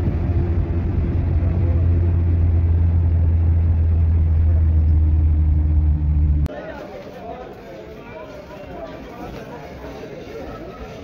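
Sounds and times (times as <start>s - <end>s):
vehicle engine drone: 0.0s - 6.5s
road noise: 0.0s - 11.0s.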